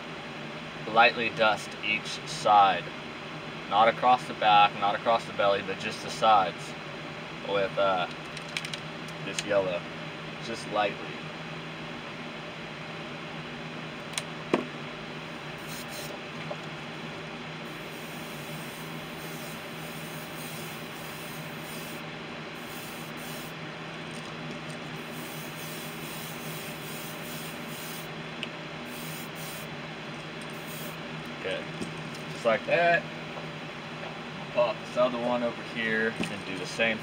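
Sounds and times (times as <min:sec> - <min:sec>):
steady background whir: 0:00.0 - 0:37.0
airbrush spray hissing: 0:15.6 - 0:16.1, 0:17.7 - 0:22.0, 0:22.6 - 0:23.6, 0:25.0 - 0:28.1, 0:28.9 - 0:29.7, 0:30.5 - 0:31.0.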